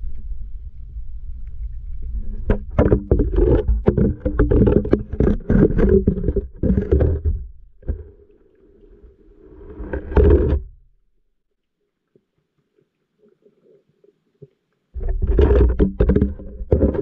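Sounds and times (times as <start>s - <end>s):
low underwater rumbling: 0.0s - 11.0s, 15.0s - 17.0s
underwater knocks: 2.4s - 8.3s, 15.0s - 17.0s.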